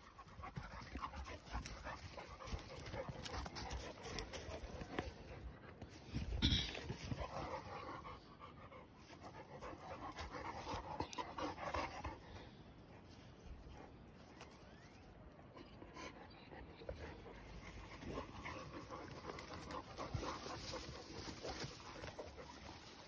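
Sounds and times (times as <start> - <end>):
rustling through undergrowth: 0.0 - 7.8, 17.4 - 23.0
large dog panting: 0.0 - 13.9, 15.6 - 23.0.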